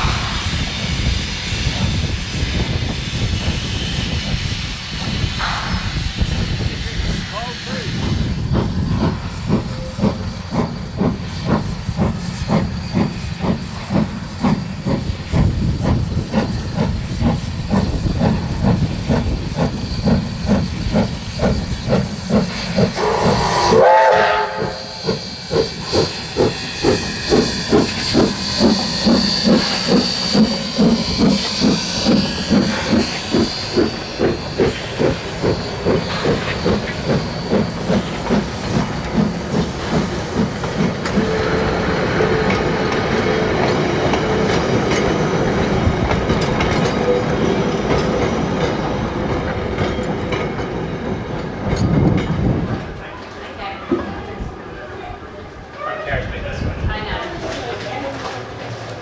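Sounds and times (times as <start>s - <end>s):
steam locomotive chuffing: 0.0s - 59.0s
steam whistle blast: 22.9s - 31.0s.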